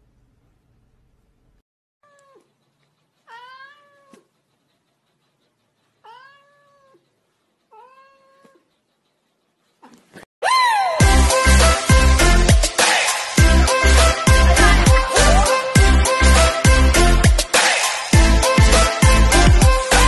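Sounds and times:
cat meowing: 2.0s - 2.6s, 3.2s - 4.3s, 6.0s - 7.1s, 7.7s - 8.7s
music: 11.0s - 20.0s.

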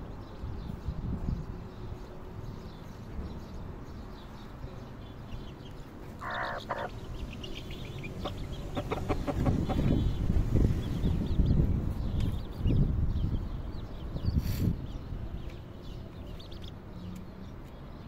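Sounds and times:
chicks peeping: 3.4s - 16.8s
hen clucking: 6.2s - 10.2s.

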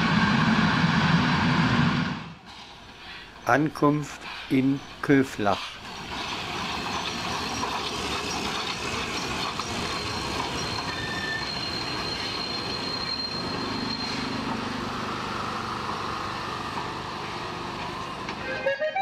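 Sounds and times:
steam train rolling: 0.0s - 19.0s
thin high squeal: 9.8s - 14.7s.

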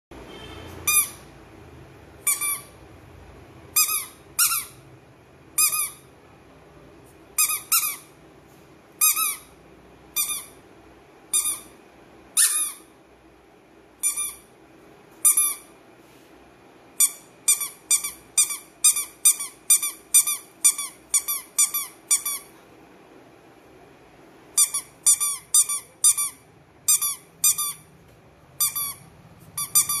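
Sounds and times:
squeaky toy squeaking: 0.8s - 1.3s, 2.2s - 2.8s, 3.7s - 4.8s, 5.5s - 6.1s, 7.4s - 8.2s, 9.0s - 10.6s, 11.3s - 12.9s, 14.0s - 14.5s, 15.2s - 15.7s, 17.0s - 22.5s, 24.5s - 27.9s, 28.6s - 30.0s.

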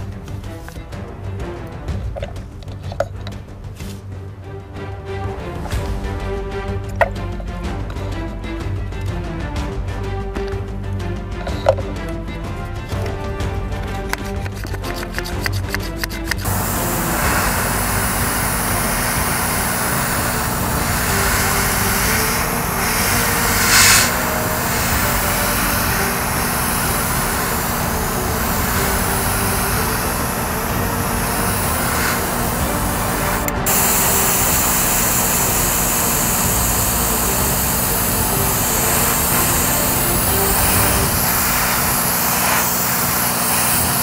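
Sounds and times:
airbrush spraying paint: 14.0s - 44.0s
hiss of air: 14.0s - 44.0s
extractor fan humming: 16.2s - 44.0s.

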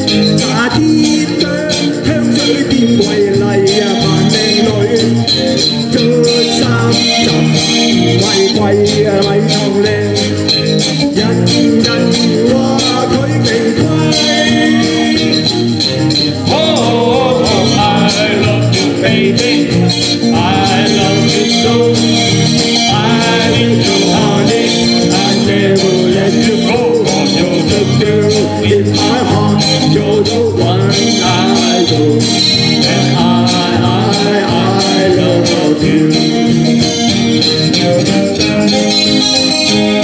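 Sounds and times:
live band playing pop song: 0.0s - 40.0s.

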